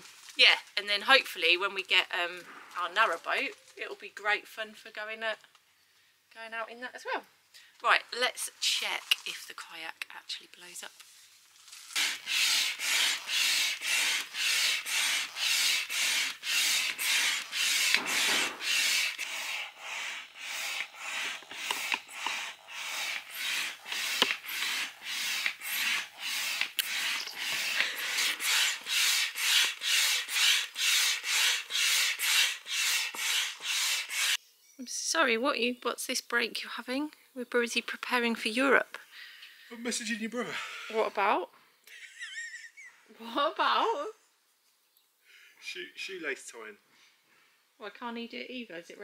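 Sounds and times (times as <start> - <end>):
hand pump air strokes: 11.9 - 34.4.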